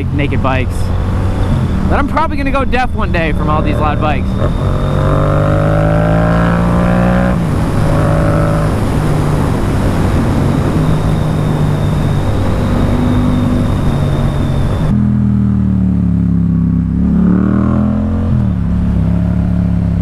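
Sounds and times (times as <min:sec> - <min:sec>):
motorcycle engine revving: 0:00.0 - 0:20.0
strong wind noise: 0:04.2 - 0:15.0.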